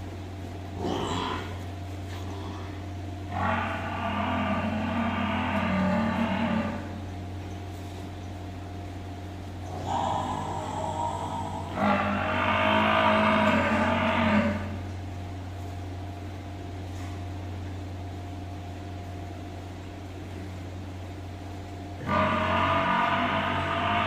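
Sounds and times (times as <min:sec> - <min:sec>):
steady low hum: 0:00.0 - 0:24.0
water buffalo mooing: 0:00.8 - 0:01.6, 0:02.2 - 0:07.0, 0:09.7 - 0:14.8, 0:22.0 - 0:24.0.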